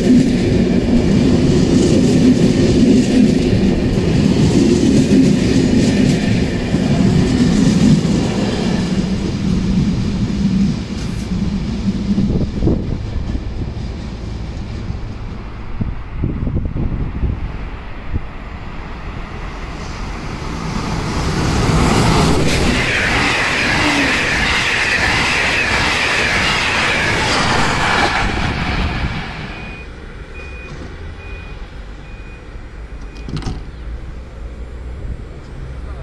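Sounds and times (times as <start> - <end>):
train passing with high squeal: 0.0 - 36.0
short high beeps: 29.5 - 33.3.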